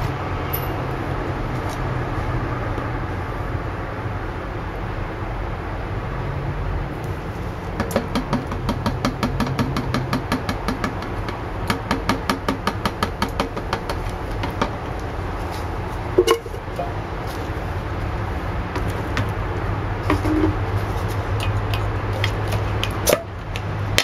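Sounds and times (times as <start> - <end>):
metal can knocking on glass jar: 16.2 - 16.9.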